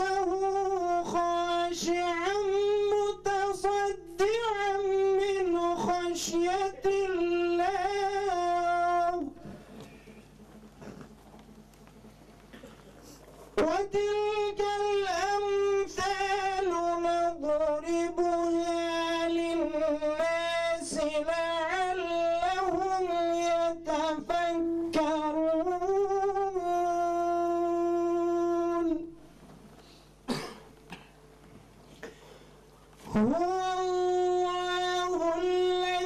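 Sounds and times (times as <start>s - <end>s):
man chanting into microphone: 0.0s - 9.7s, 13.5s - 29.2s, 33.0s - 36.0s.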